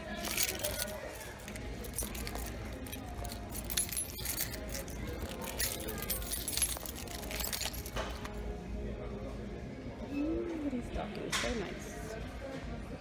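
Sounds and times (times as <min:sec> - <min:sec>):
music: 0:00.0 - 0:13.0
metallic jingling rattle: 0:00.1 - 0:08.3.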